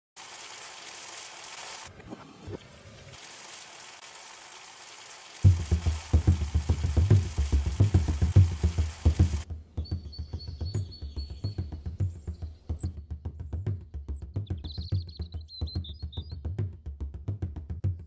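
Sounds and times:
curry sizzling in a wok: 0:00.2 - 0:01.9, 0:03.2 - 0:09.5
deep pulsing music beat: 0:05.5 - 0:18.0.

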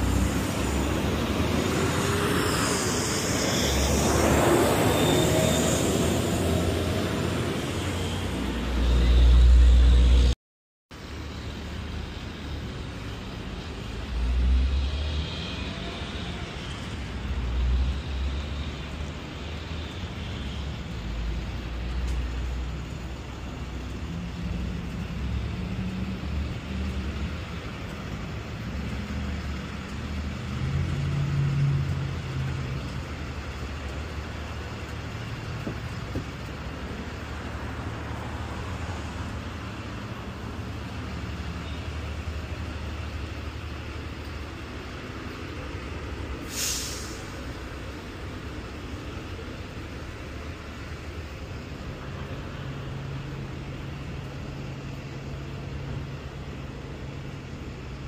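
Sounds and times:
traffic rumble: 0:00.0 - 0:58.0
short sharp hiss: 0:46.4 - 0:47.6.

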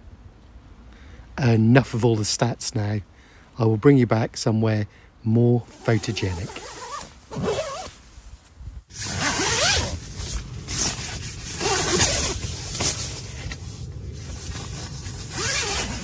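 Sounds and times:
nylon fabric rustling: 0:05.6 - 0:16.0
tent door zip pulled: 0:05.7 - 0:08.0, 0:08.9 - 0:16.0.

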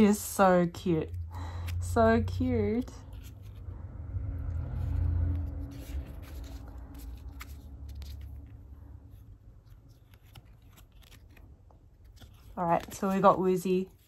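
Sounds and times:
low rumble: 0:00.0 - 0:09.8.

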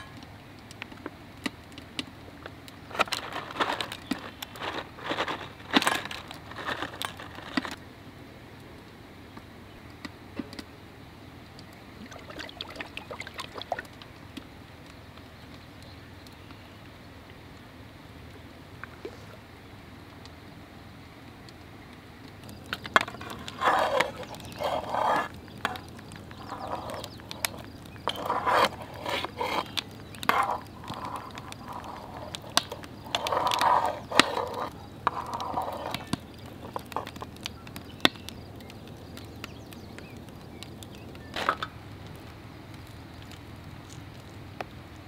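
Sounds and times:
wooden spoon scraping a pot: 0:22.8 - 0:37.2.

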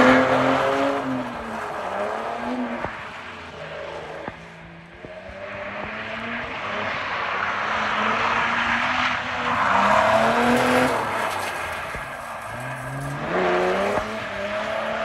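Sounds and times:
car engine revving hard: 0:00.0 - 0:03.0, 0:05.3 - 0:15.0
tyres squealing on asphalt: 0:06.9 - 0:15.0.

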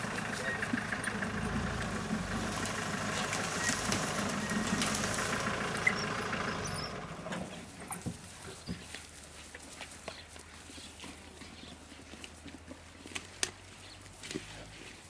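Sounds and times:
vehicle engine idling: 0:00.0 - 0:09.7.

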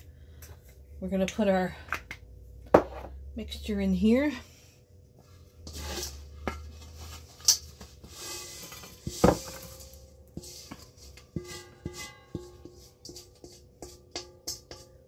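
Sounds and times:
sticky mixture being scraped: 0:05.7 - 0:12.0, 0:12.6 - 0:14.9.

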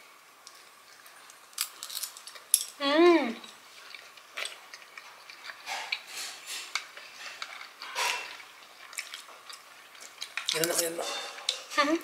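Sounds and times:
chopstick scrape: 0:05.6 - 0:08.4.

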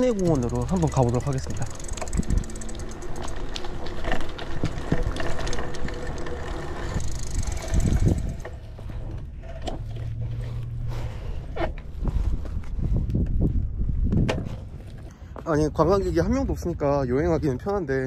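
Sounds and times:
bicycle hub ticking: 0:00.0 - 0:09.0
bicycle bumps: 0:00.0 - 0:15.0
road noise: 0:00.0 - 0:16.8.

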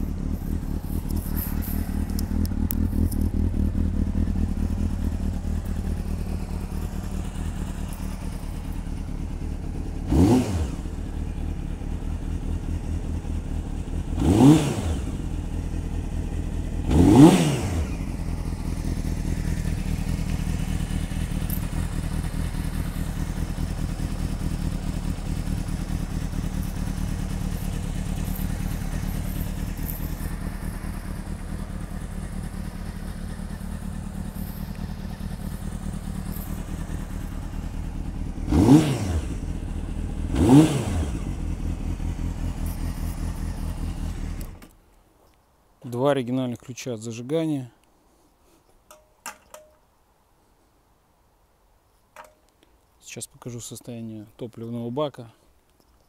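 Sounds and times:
motorcycle engine idling: 0:00.0 - 0:44.8
motorcycle throttle blips: 0:00.0 - 0:44.8.

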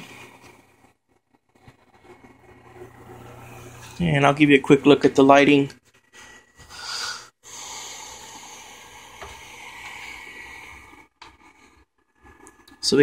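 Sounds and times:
aquarium hiss: 0:02.1 - 0:11.1.

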